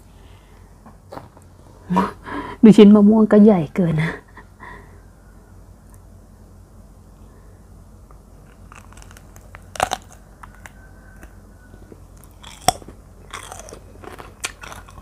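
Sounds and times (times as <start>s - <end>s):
chewing with crackly clicks: 8.1s - 15.0s
crunchy bite: 8.4s - 15.0s.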